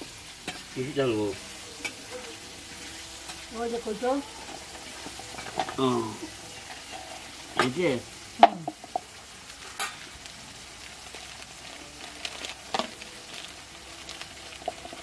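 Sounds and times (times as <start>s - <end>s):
steady hiss: 0.0s - 15.0s
plastic bags rustling: 9.0s - 15.0s.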